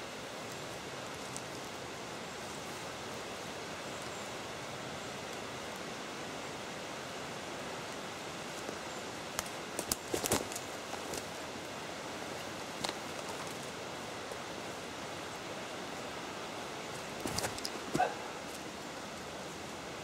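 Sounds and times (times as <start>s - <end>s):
sharp clicks and cracks: 9.3s - 11.3s.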